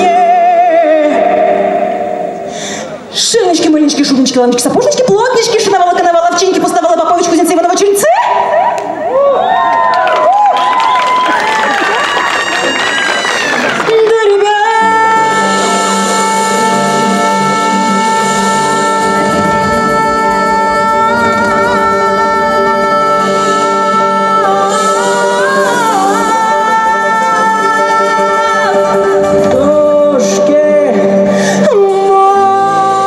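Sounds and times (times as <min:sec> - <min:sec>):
person singing: 0:00.0 - 0:03.2, 0:13.5 - 0:33.0
folk-fusion band music: 0:11.7 - 0:33.0.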